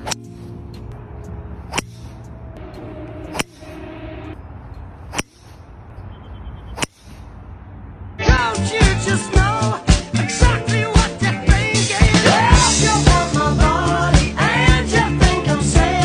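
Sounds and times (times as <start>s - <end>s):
golf club striking ball: 1.6s - 2.3s, 5.0s - 5.6s.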